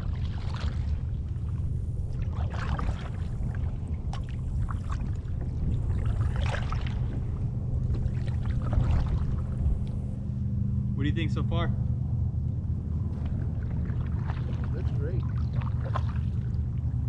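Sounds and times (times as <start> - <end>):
paddle splashing in water: 0.0 - 7.3, 7.9 - 9.8, 13.2 - 16.6
low rumble: 0.0 - 17.0.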